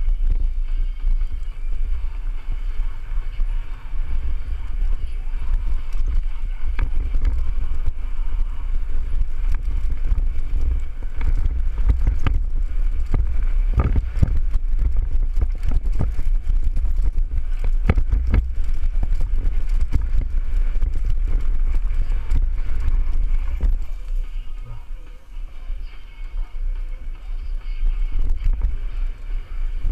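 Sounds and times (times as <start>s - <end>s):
bike rattling: 0.0s - 29.9s
wind buffeting microphone: 0.0s - 29.9s
bike knocking over bumps: 4.8s - 24.3s.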